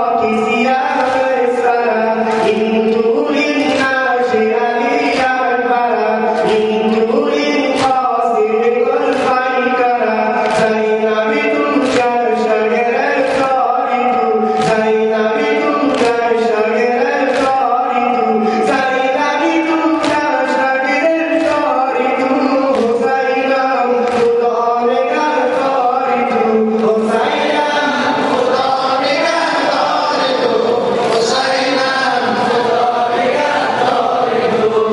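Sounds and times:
men singing a lament: 0:00.0 - 0:34.9
hands slapping chests: 0:10.4 - 0:10.9, 0:11.7 - 0:12.2, 0:13.2 - 0:14.9, 0:15.8 - 0:16.3, 0:17.3 - 0:17.6, 0:21.3 - 0:21.7, 0:24.0 - 0:24.4.

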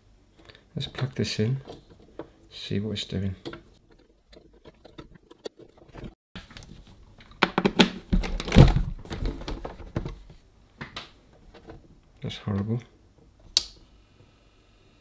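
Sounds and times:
record player case knocks and thuds: 0:07.4 - 0:11.0.

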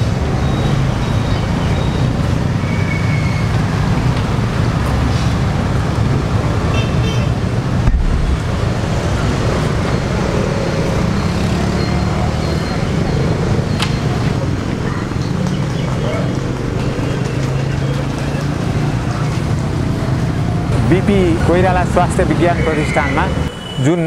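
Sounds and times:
street traffic rumble: 0:00.0 - 0:24.0
thump: 0:07.8 - 0:09.2.

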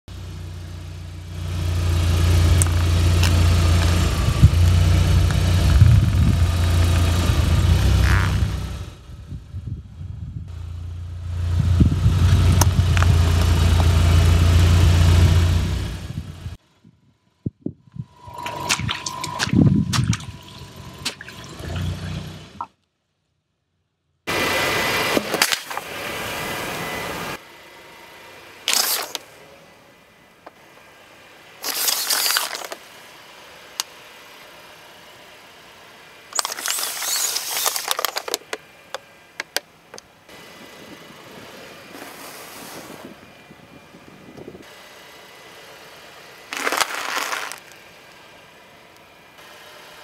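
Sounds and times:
plastic bottles crushed by tyre: 0:28.7 - 0:29.2, 0:31.6 - 0:32.8, 0:36.4 - 0:38.6, 0:46.5 - 0:47.8
tyre splashing through puddle: 0:46.5 - 0:47.6.

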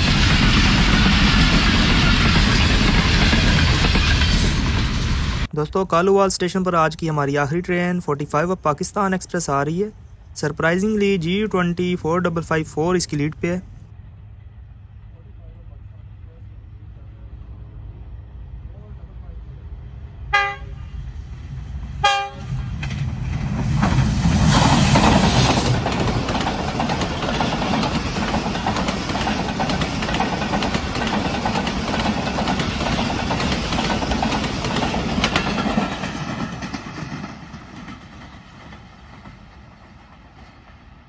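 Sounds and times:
train wheels on rails: 0:00.0 - 0:05.6, 0:20.0 - 0:41.0
locomotive horn blasts: 0:20.3 - 0:20.9, 0:22.0 - 0:22.5.

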